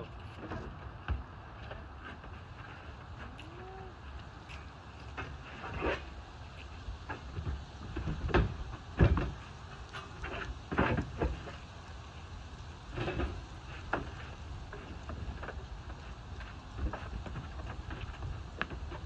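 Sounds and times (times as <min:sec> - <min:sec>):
knocks and bumps in van: 0:07.1 - 0:09.5.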